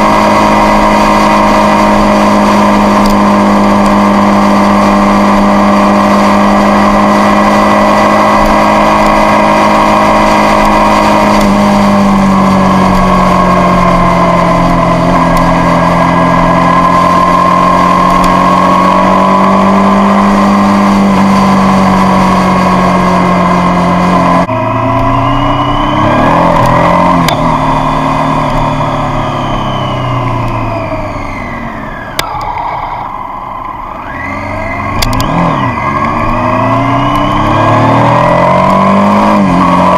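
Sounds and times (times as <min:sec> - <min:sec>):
motorcycle engine cruising: 0:00.0 - 0:39.9
sharp click: 0:35.0 - 0:35.4.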